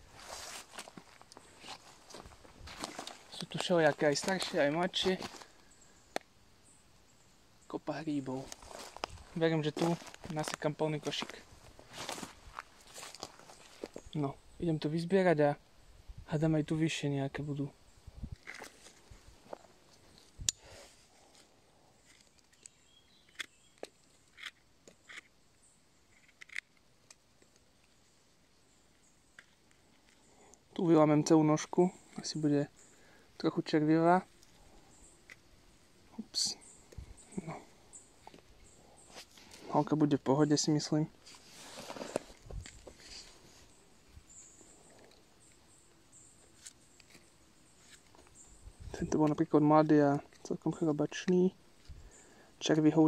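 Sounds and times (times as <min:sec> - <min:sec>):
faint bird chirps: 0:19.9 - 0:26.3, 0:36.0 - 0:53.0.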